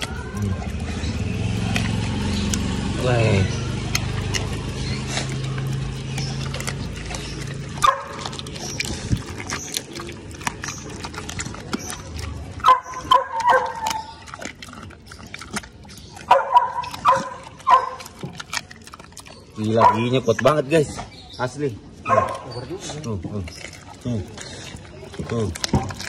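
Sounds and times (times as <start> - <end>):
low engine hum: 0.0 - 15.1
dog chewing and crunching meat: 0.0 - 26.0
dog barks: 7.8 - 8.4, 12.6 - 14.2, 16.2 - 18.2, 19.7 - 20.2, 22.0 - 22.5.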